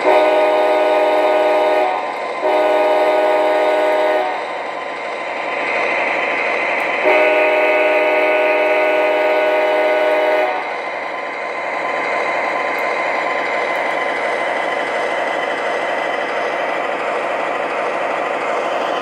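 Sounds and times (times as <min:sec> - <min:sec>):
multi-note train horn: 0:00.0 - 0:04.5, 0:07.0 - 0:10.8.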